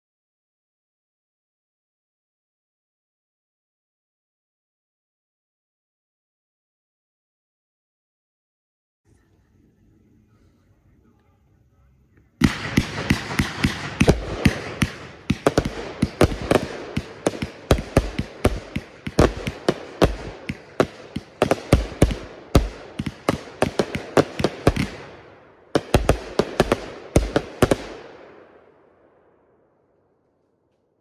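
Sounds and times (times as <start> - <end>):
firework bangs in rapid volley: 12.4 - 28.4.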